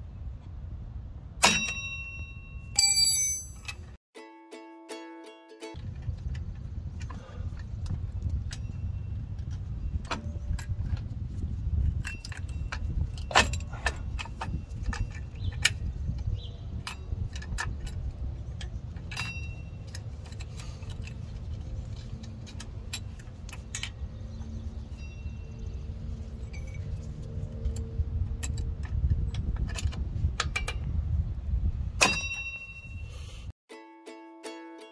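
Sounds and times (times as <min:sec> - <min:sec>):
steady low rumble: 0:00.0 - 0:02.7, 0:05.8 - 0:32.0
metallic clicks of brake parts: 0:11.9 - 0:24.6, 0:26.4 - 0:31.0.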